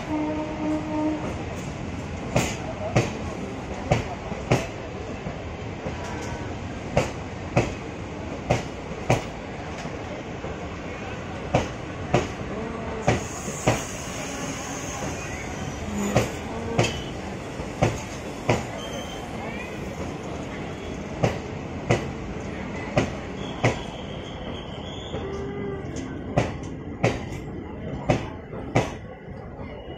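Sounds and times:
train rumble: 0.0 - 29.9
train wheels clacking over rail joint: 13.0 - 14.3, 16.0 - 18.8
faint high squeal: 13.3 - 17.2, 18.7 - 19.8, 23.3 - 25.9.

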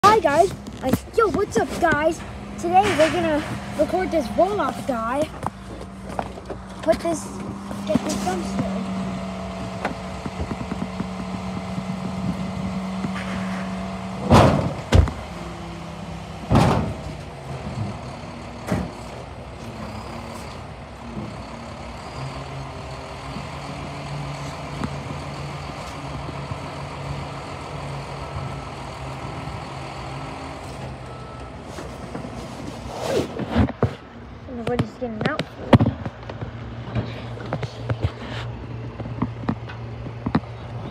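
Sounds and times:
truck engine running under load: 0.0 - 40.9
loud metal bangs: 1.2 - 6.2.

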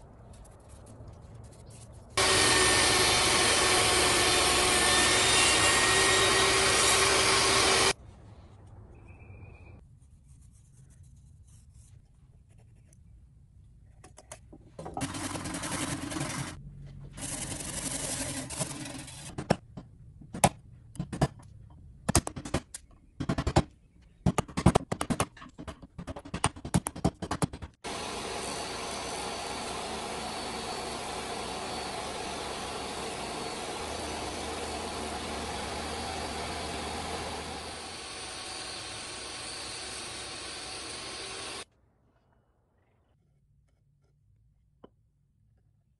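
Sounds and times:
table saw running: 2.2 - 8.0, 27.8 - 41.6
scraping wood: 15.0 - 16.6.

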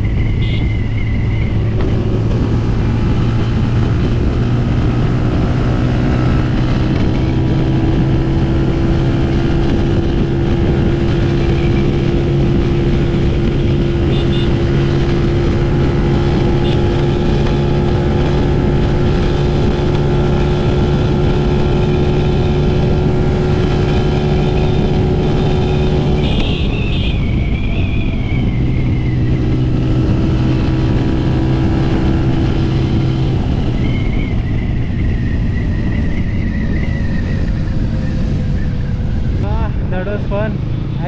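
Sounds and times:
motorcycle engine at high rpm: 0.0 - 41.0
wind and road noise: 0.0 - 41.0.

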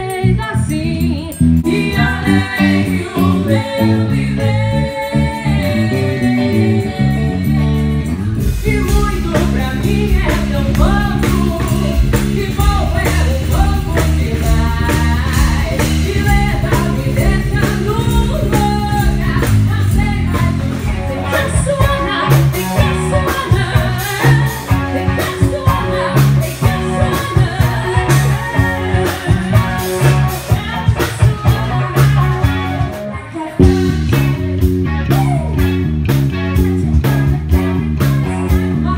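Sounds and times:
woman singing: 0.0 - 34.4, 36.4 - 38.9
bass guitar: 0.0 - 38.9
drums: 0.0 - 38.9
electric guitar: 0.0 - 38.9.

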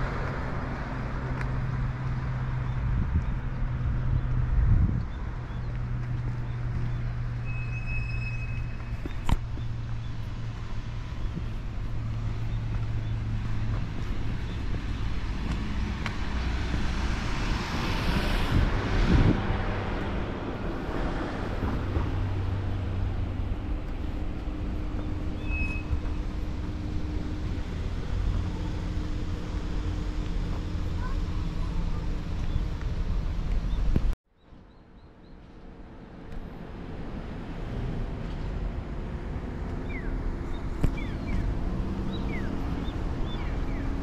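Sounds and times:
low engine hum: 0.0 - 44.0
vehicle passing close: 9.2 - 33.8.

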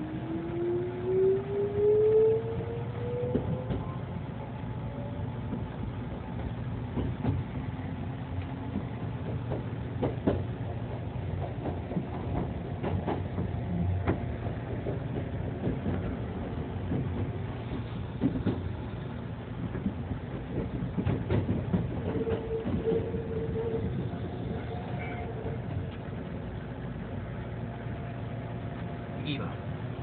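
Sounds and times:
train running rumble: 0.0 - 30.0
wheels clicking on rails: 8.4 - 26.5
train motor whine: 22.1 - 26.2.

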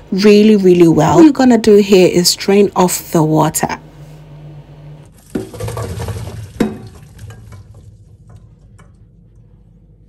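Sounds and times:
water pouring into colander: 5.2 - 8.9.

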